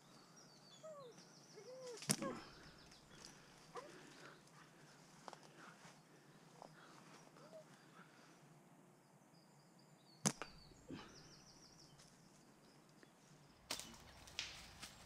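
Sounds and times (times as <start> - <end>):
slingshot crack: 10.2 - 10.6, 13.7 - 15.0.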